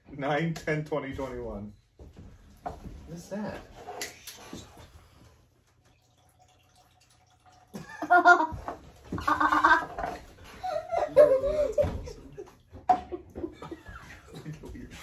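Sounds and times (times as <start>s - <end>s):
laughter: 7.7s - 15.0s.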